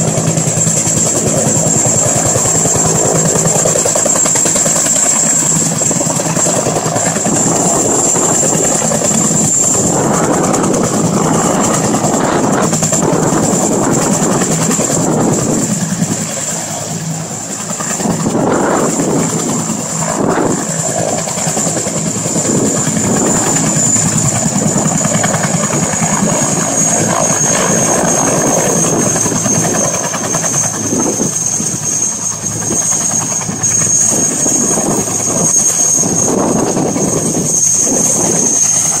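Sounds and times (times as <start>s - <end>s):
helicopter rotor noise: 0.0s - 39.0s
high turbine whine: 0.0s - 39.0s.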